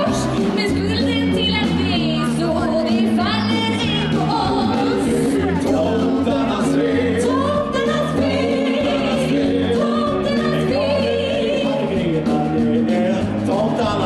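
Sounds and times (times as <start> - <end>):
instrumental accompaniment with bass: 0.0 - 14.0
man and woman singing: 4.0 - 14.0.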